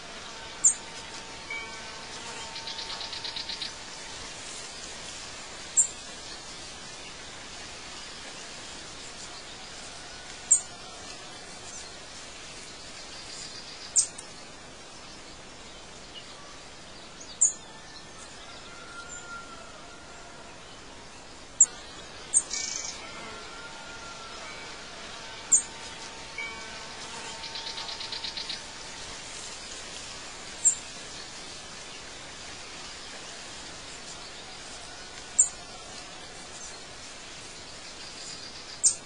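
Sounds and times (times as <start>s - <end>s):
steady hiss: 0.0s - 39.0s
bird trill: 22.3s - 23.0s, 25.4s - 25.8s.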